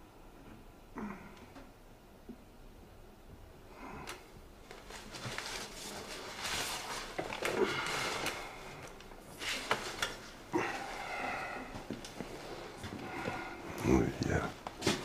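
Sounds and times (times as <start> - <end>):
paper wrapping rustling: 4.6 - 10.5.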